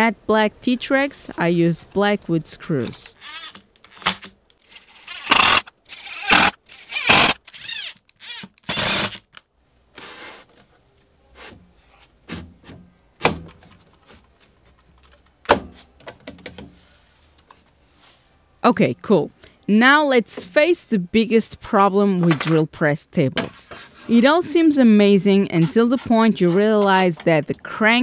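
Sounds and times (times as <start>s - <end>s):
cordless driver whirring: 4.6s - 9.2s.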